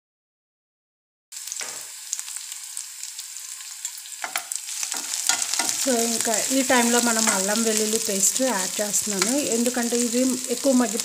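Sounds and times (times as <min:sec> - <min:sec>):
onions sizzling in oil: 0:01.3 - 0:11.0
spoon scraping and clicking on pan: 0:03.8 - 0:05.9, 0:07.1 - 0:07.6, 0:09.2 - 0:09.5.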